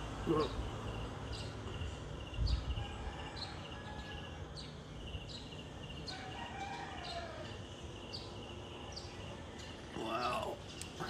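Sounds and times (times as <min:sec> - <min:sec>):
pulsing insect trill: 0:00.3 - 0:10.7
rooster crowing: 0:02.7 - 0:04.6, 0:06.0 - 0:07.6.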